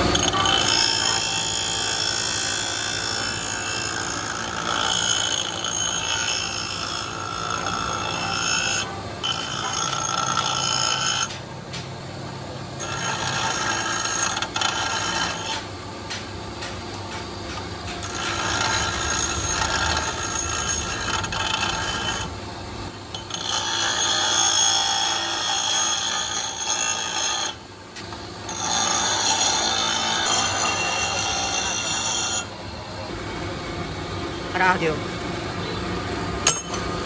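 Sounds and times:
grinder wheel screeching on steel: 0.0 - 11.4, 12.8 - 15.7, 18.0 - 22.4, 23.1 - 27.6, 28.5 - 32.5.

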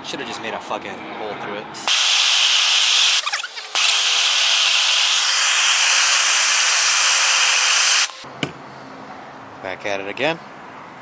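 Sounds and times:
hand torch flame hissing: 1.8 - 8.3.

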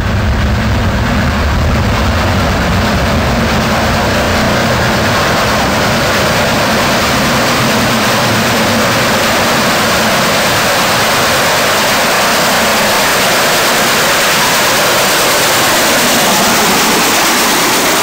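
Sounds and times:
steam train passing: 0.0 - 18.0.

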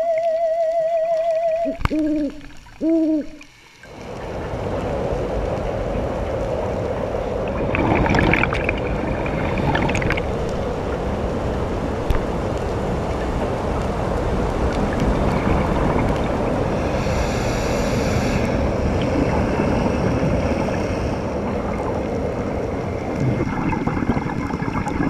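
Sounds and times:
muffled underwater rushing: 0.0 - 25.0
high hiss: 16.6 - 21.3.

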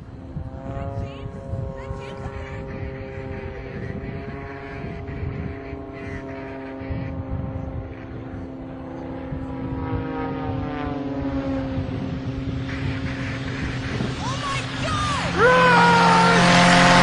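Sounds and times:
propeller aircraft engine: 0.0 - 17.0
rising and falling tone: 9.4 - 17.0.

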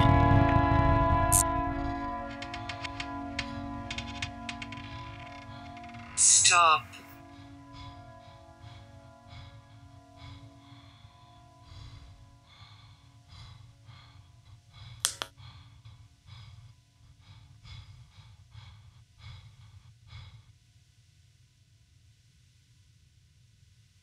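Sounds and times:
sharp click: 15.0 - 15.3.

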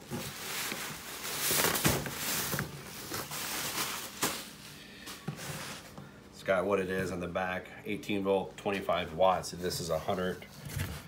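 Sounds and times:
bubble wrap rustling and crackling: 0.0 - 6.0.

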